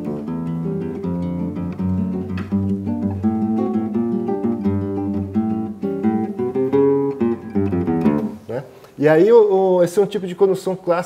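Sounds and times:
nylon-string guitar fingerstyle: 0:00.0 - 0:08.7.

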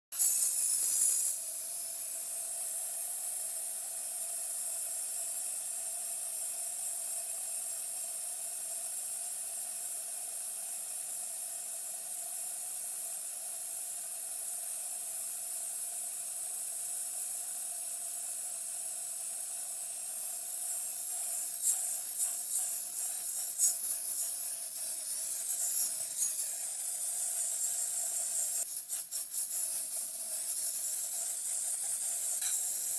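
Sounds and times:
aerosol can spraying hiss: 0:00.2 - 0:11.1, 0:19.0 - 0:32.9.

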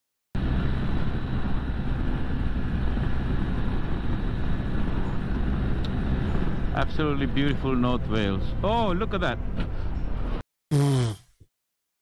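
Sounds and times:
wind rush on microphone: 0:00.4 - 0:06.7
motorcycle engine drone: 0:00.4 - 0:09.6.

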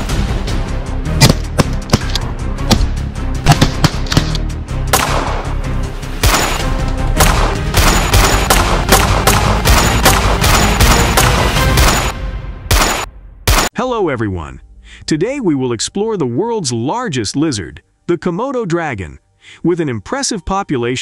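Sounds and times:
background music: 0:00.0 - 0:21.0
gunshots: 0:02.7 - 0:05.6, 0:06.2 - 0:13.7.

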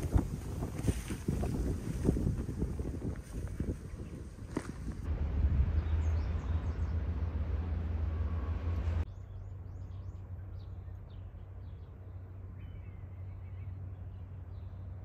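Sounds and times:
wind on microphone: 0:00.0 - 0:06.9
faint low rumble: 0:02.0 - 0:15.0
birds chirping: 0:03.3 - 0:15.0.

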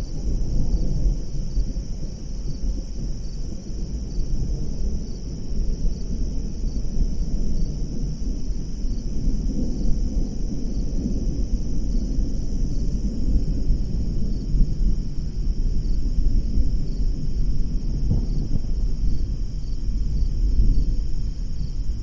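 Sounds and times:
crickets chirping: 0:00.0 - 0:22.0
distant thunder rumbling: 0:17.6 - 0:21.1.

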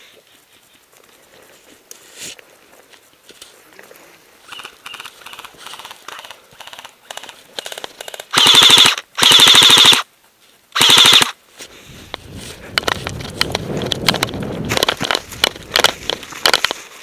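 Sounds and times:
footsteps through dry grass: 0:00.0 - 0:06.6, 0:11.4 - 0:17.0
airsoft gun full-auto bursts: 0:04.5 - 0:10.1, 0:10.8 - 0:11.4.

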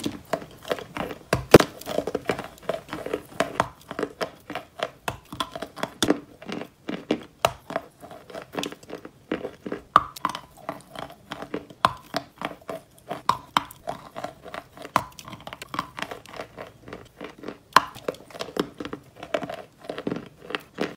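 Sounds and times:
person chewing crunchy chalk: 0:00.0 - 0:20.9.

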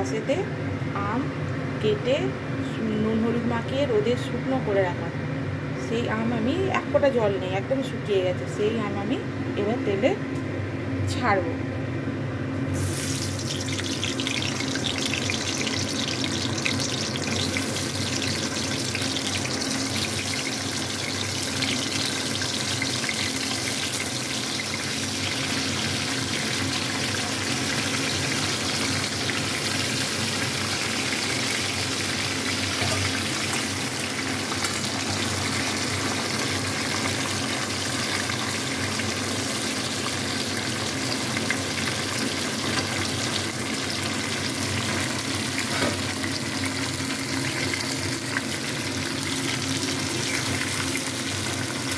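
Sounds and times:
food sizzling in hot oil: 0:12.7 - 0:51.9.

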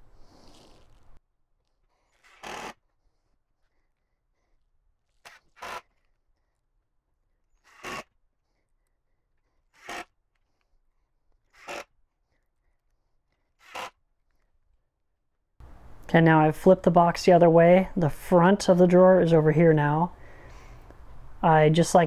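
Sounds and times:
power drill driving screws: 0:02.2 - 0:02.8, 0:05.3 - 0:05.9, 0:07.6 - 0:08.1, 0:09.8 - 0:10.1, 0:11.6 - 0:11.9, 0:13.6 - 0:13.9.

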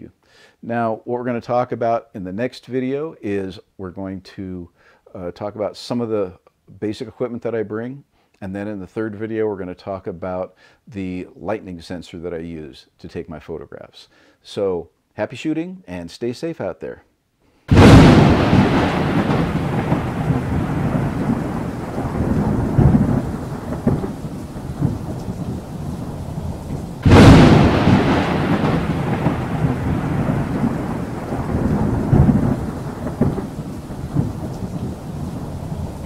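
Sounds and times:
rain: 0:17.7 - 0:36.0
rolling thunder rumble: 0:17.7 - 0:36.0
thunderclap: 0:17.7 - 0:36.0.

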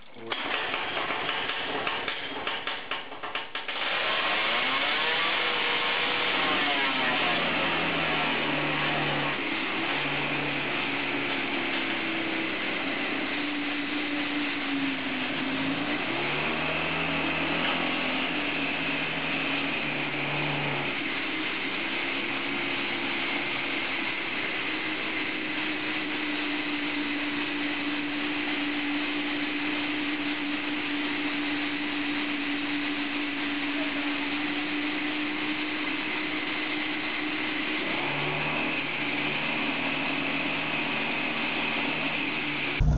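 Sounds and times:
motorcycle engine running: 0:04.4 - 0:42.9.

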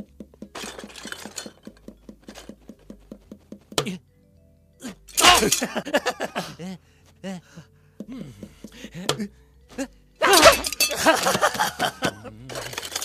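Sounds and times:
cartoon dog yelling in pain: 0:05.2 - 0:05.6, 0:10.2 - 0:10.7.

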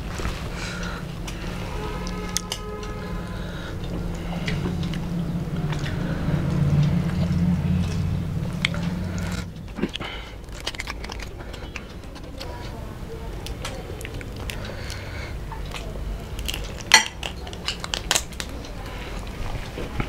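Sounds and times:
hands squelching in food: 0:00.0 - 0:12.7
chewing: 0:00.0 - 0:20.0
steady low hum: 0:00.0 - 0:20.0.

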